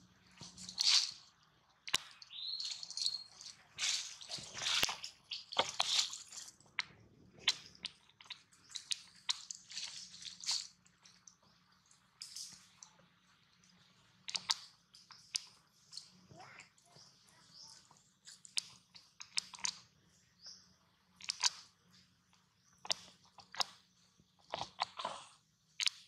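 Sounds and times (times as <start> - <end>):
baby monkey suckling sounds: 17.9 - 19.8, 21.2 - 21.7.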